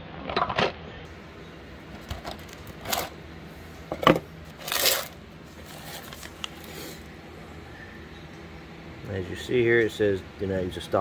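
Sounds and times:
rustling: 4.5 - 7.1.

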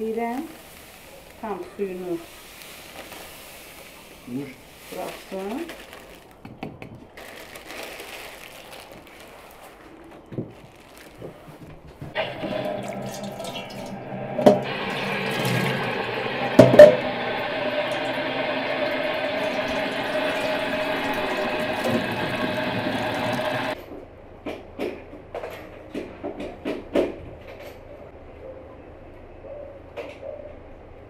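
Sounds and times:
tap water running into metal bowl: 12.2 - 23.8.

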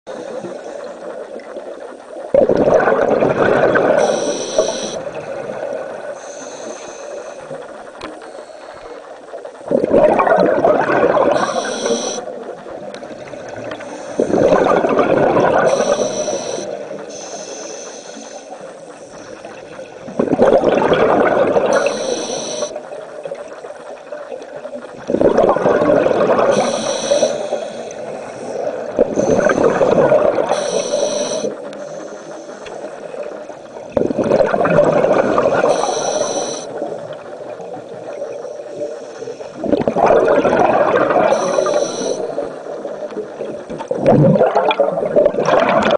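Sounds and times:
regulator inhale hiss: 0.1 - 1.0, 4.0 - 5.1, 6.1 - 9.0, 11.4 - 12.4, 13.8 - 14.5, 15.7 - 19.6, 21.7 - 22.8, 26.5 - 33.5, 35.6 - 36.9, 38.3 - 39.7, 41.3 - 43.1
exhaled bubbles gushing: 2.2 - 6.2, 9.6 - 17.0, 19.4 - 22.7, 24.4 - 31.5, 33.2 - 38.4, 39.6 - 45.9.

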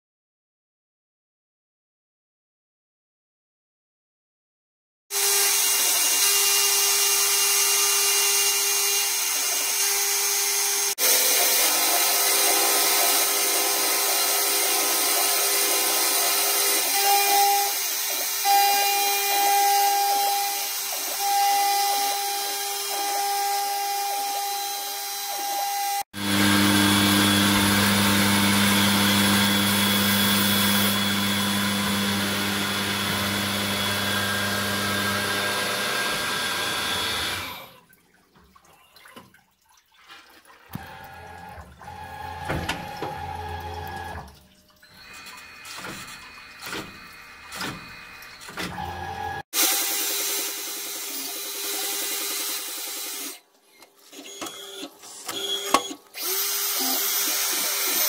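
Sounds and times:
milling machine whine: 5.4 - 37.7, 40.8 - 53.4.

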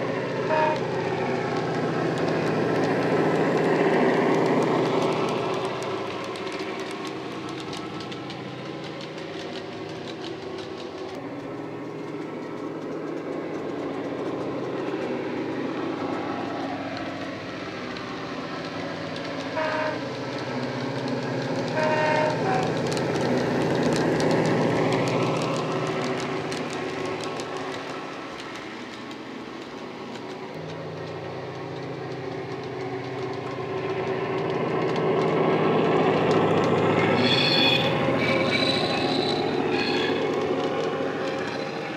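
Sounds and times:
model train diesel engine sound: 0.0 - 41.9
model train wheels clattering: 0.0 - 41.9
short horn blasts: 0.5 - 0.8.

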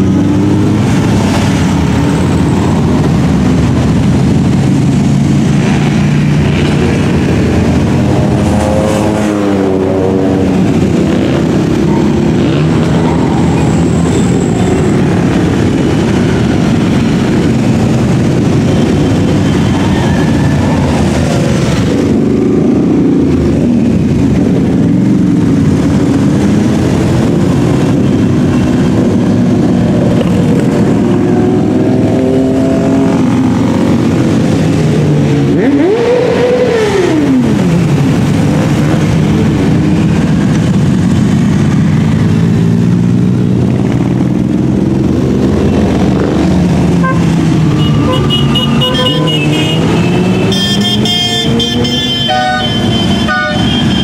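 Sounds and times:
motorcycle engine revving: 0.0 - 54.0
motorcycles riding past: 0.0 - 54.0
horns tooting: 46.9 - 54.0.

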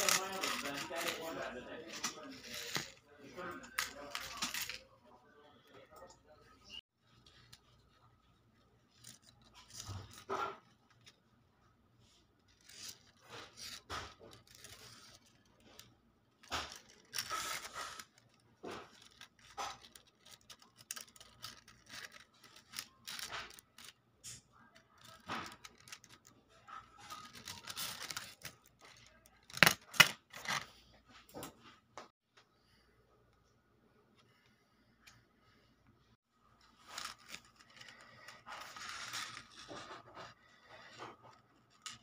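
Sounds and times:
paper rustling: 0.0 - 5.0, 7.0 - 11.2, 12.0 - 30.8, 36.6 - 42.0.

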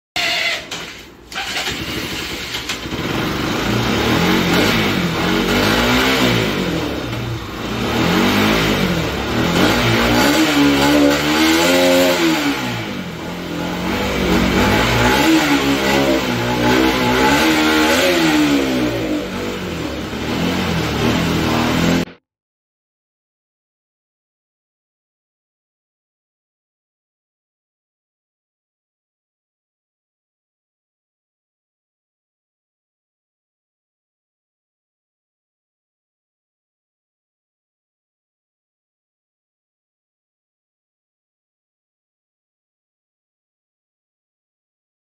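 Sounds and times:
motorcycle engine revving: 0.2 - 22.2.

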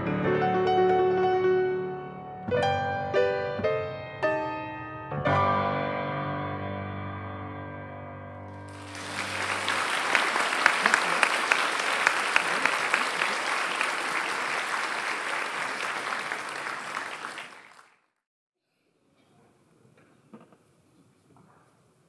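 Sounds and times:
piano music: 0.0 - 10.1
audience applauding: 8.7 - 18.1.

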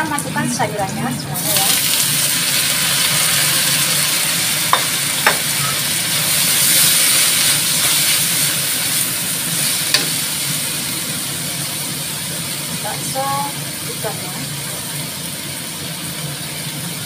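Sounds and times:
vegetables sizzling in hot oil: 0.0 - 17.0
spatula knocking on wok: 4.7 - 5.6, 9.9 - 10.2.

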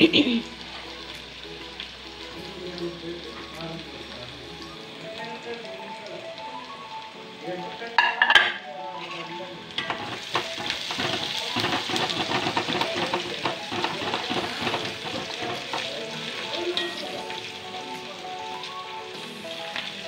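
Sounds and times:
shallots and garlic sizzling in oil: 0.0 - 20.0
metal ladle scraping a pan: 8.0 - 17.3.

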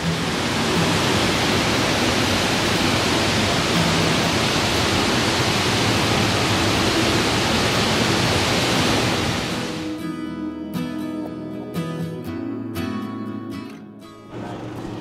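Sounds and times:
water rushing over rocks: 0.0 - 10.0.

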